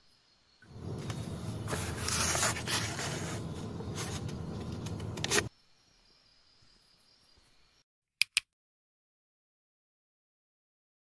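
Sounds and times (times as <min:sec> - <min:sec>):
paper rustling and crackling: 0:00.8 - 0:05.5.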